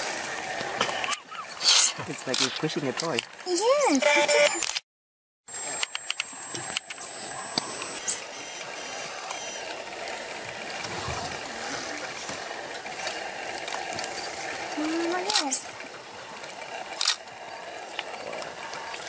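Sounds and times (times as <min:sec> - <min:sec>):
porcupine rattling quills: 0:09.2 - 0:19.0.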